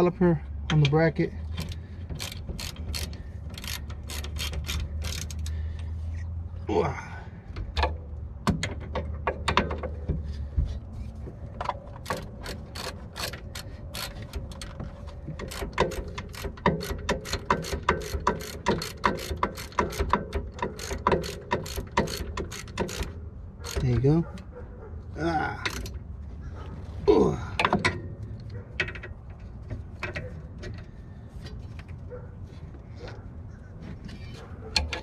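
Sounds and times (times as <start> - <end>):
socket ratchet clicking: 1.6 - 5.6, 12.0 - 23.9.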